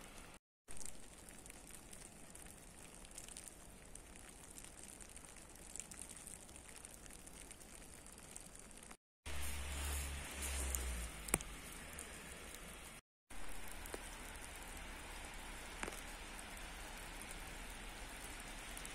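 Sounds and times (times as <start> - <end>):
sleet pattering on pavement: 9.3 - 18.9.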